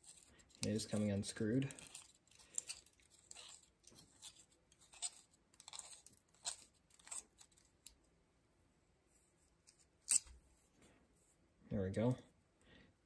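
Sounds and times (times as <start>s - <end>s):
threads grinding and scraping: 0.0s - 8.0s.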